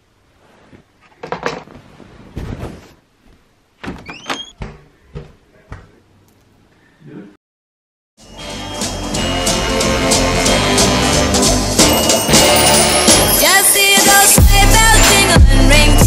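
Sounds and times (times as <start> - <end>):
door squeaking: 3.8 - 5.3
door knocks and thuds: 3.8 - 5.9.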